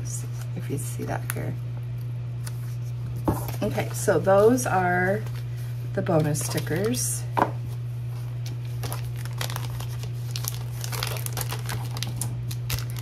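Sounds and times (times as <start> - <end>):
steady low hum: 0.0 - 13.0
plastic sleeve crinkling: 7.7 - 13.0.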